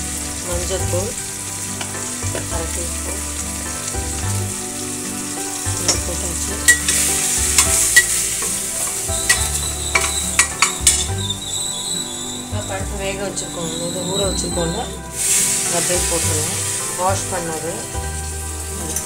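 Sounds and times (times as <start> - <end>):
vegetables sizzling in hot oil: 0.0 - 19.0
spatula scraping metal pot: 5.8 - 12.4.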